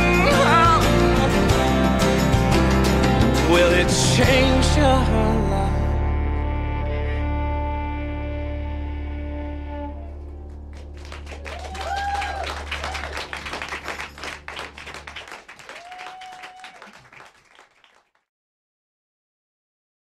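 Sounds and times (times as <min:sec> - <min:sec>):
audience clapping and cheering: 0:10.1 - 0:18.2
whooping calls: 0:15.7 - 0:17.0.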